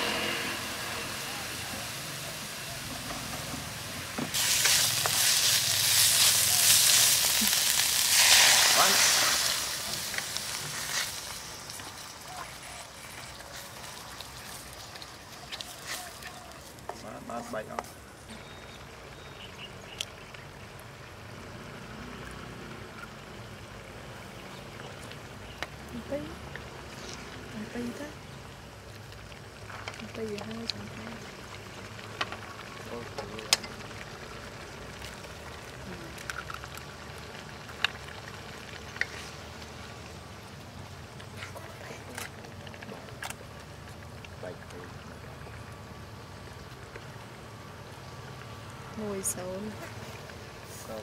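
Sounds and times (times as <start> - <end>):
fish sizzling in a pan: 0.0 - 16.9, 23.1 - 51.0
curry simmering hiss: 0.0 - 51.0.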